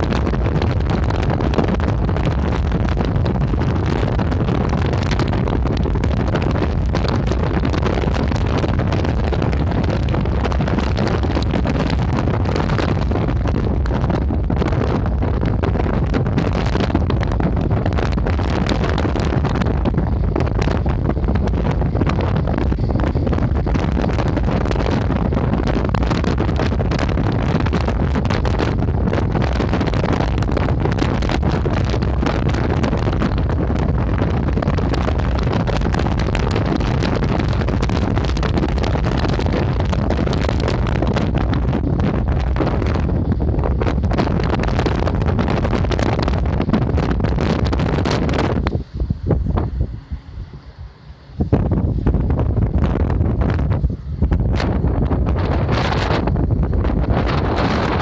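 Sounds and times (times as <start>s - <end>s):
wind rumbling on microphone: 0.0s - 58.0s.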